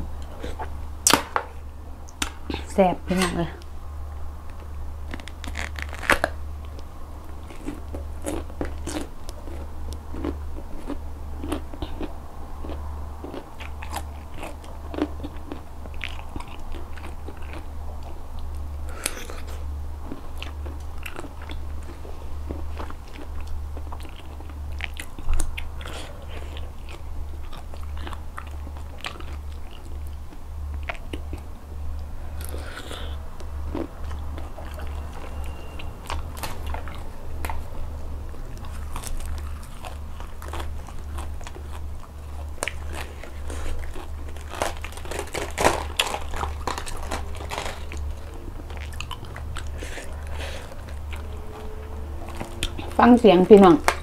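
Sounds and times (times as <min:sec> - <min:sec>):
steady low hum: 0:00.0 - 0:54.0
crunchy chewing: 0:04.4 - 0:53.0.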